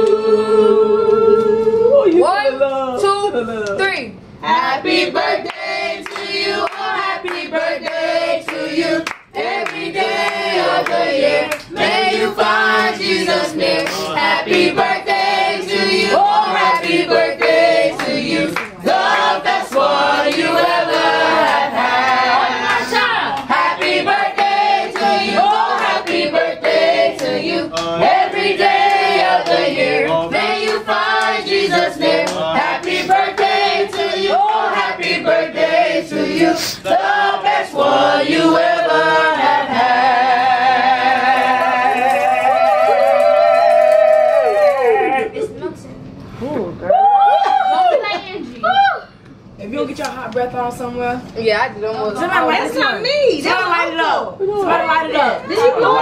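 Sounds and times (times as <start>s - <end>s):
group singing a birthday tune: 0.0s - 43.4s, 52.1s - 56.0s
hand claps: 8.5s - 11.7s.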